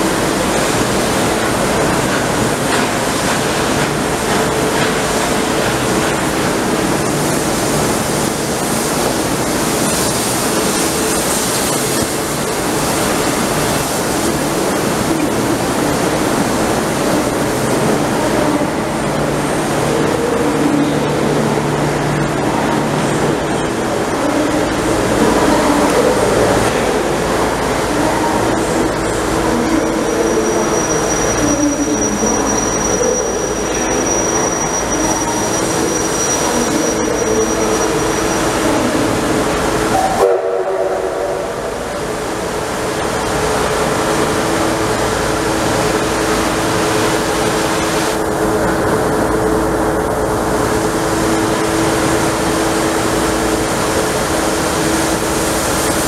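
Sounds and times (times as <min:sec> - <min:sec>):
steam hissing: 0:00.1 - 0:18.2.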